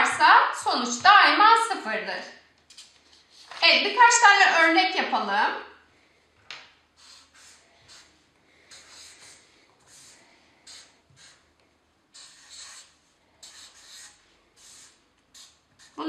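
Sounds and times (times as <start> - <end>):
marker pen scratching on paper: 7.0 - 16.0.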